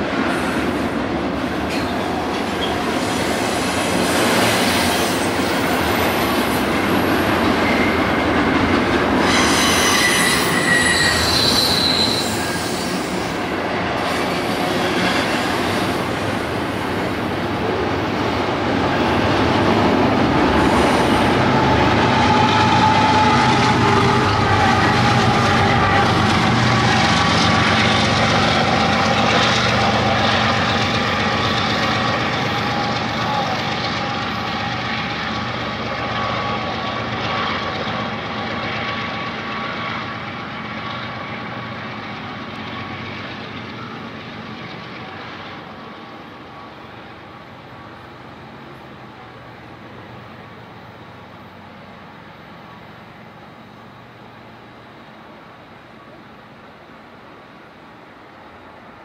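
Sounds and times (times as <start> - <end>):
train wheels rumbling on rails: 0.0 - 59.0
high-pitched wheel squeal: 9.2 - 13.4.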